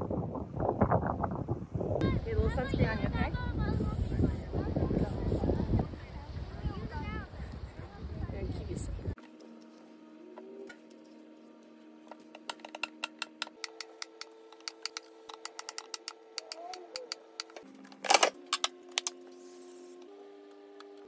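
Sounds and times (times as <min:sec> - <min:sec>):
soft background music: 0:08.4 - 0:21.0.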